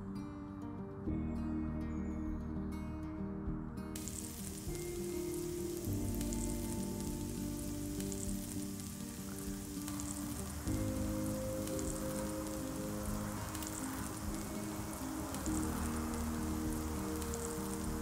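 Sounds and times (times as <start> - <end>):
soft background music: 0.0 - 18.0
shellfish sizzling on grill: 4.0 - 18.0.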